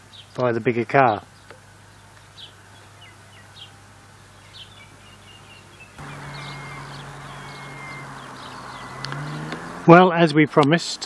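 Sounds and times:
small birds chirping: 0:01.2 - 0:09.9.

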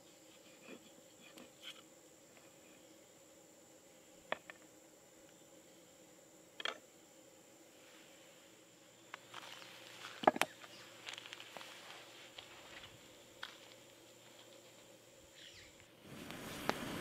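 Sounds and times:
faint high whine: 0:00.0 - 0:17.0.

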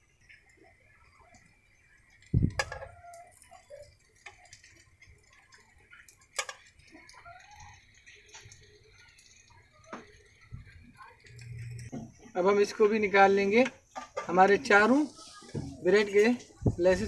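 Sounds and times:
bread frying in oil: 0:00.0 - 0:17.0
metal tongs knocking on pan: 0:02.5 - 0:03.0.

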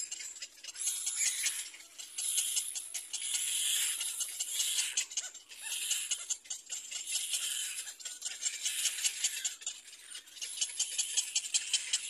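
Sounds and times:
cormorant chicks begging calls: 0:00.0 - 0:12.0.

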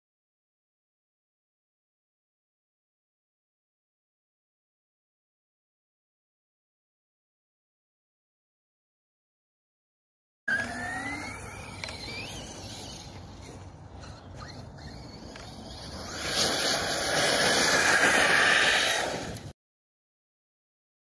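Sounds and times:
electric motor whining: 0:10.5 - 0:19.5.

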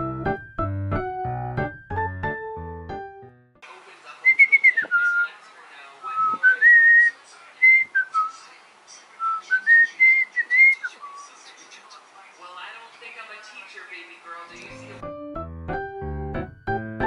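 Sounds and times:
person whistling a tune: 0:06.2 - 0:07.1, 0:09.2 - 0:10.9.

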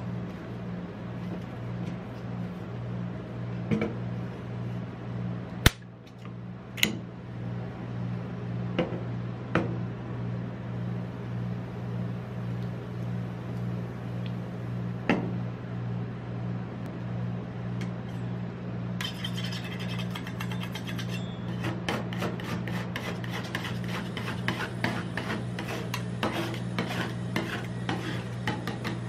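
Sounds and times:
machine low hum: 0:00.0 - 0:29.0
sharp snap: 0:05.6 - 0:05.9.

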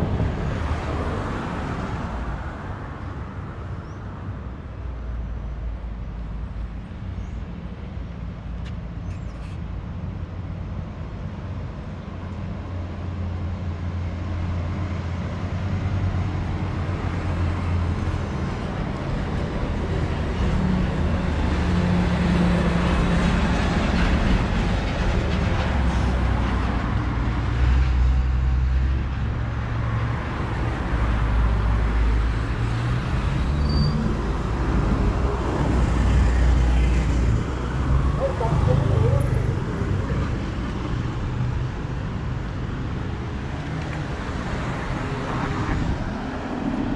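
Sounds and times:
vehicles driving past: 0:00.0 - 0:46.9
heavy engine low hum: 0:33.3 - 0:43.4.

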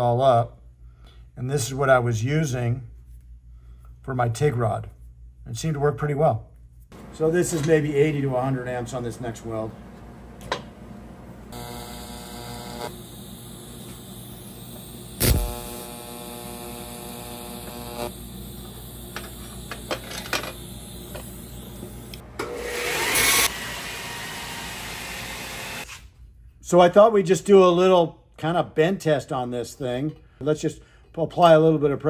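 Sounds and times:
tig welding buzzing hum: 0:07.0 - 0:22.2, 0:24.7 - 0:25.9
welding hiss: 0:11.5 - 0:22.2.

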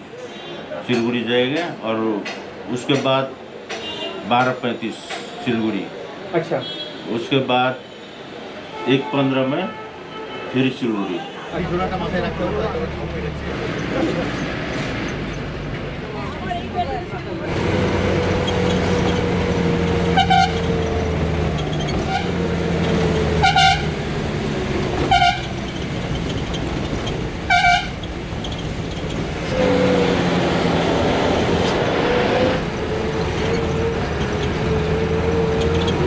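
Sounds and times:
bus engine running: 0:11.7 - 0:36.0.

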